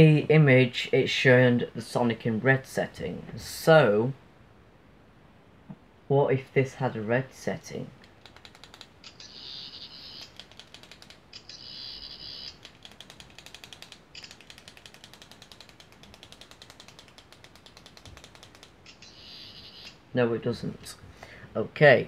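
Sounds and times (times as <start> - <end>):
high-pitched electronic tone: 11.4 - 12.6.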